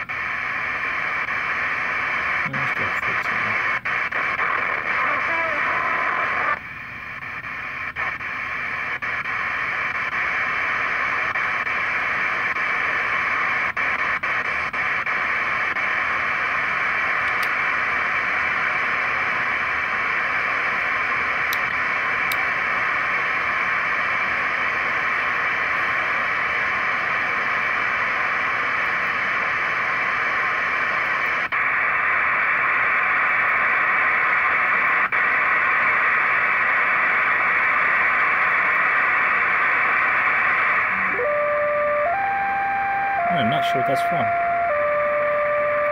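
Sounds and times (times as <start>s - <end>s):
shortwave radio static: 0.0s - 45.9s.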